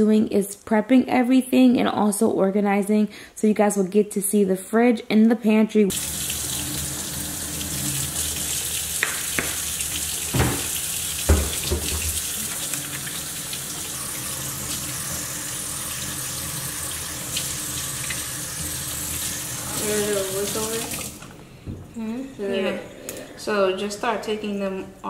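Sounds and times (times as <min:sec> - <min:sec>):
faucet water splashing on colander: 0:05.9 - 0:21.3
knocks at sink: 0:09.0 - 0:09.6, 0:10.3 - 0:12.2.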